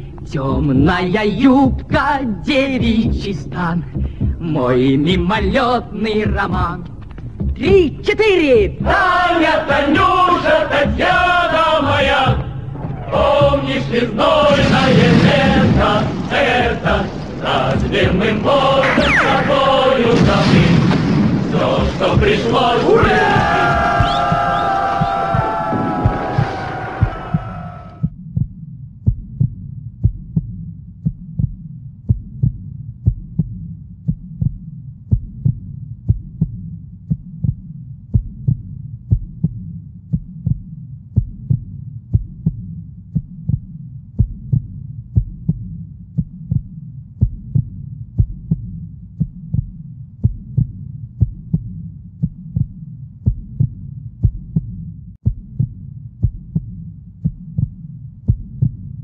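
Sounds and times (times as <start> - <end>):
continuous low hum: 0.0 - 28.0
heartbeat thumps: 0.0 - 59.0.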